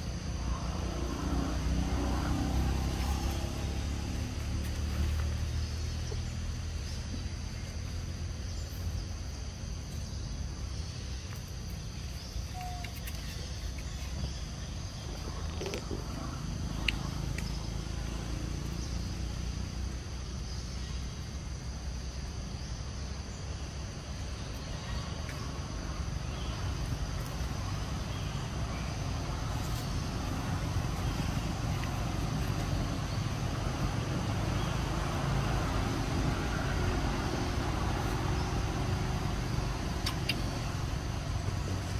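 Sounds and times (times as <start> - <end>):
high insect drone: 0.0 - 41.9
steady low rumble: 13.4 - 41.9.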